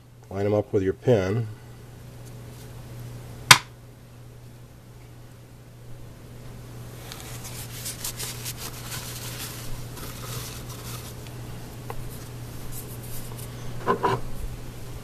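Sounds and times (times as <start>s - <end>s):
paper towel crinkling: 7.0s - 13.5s.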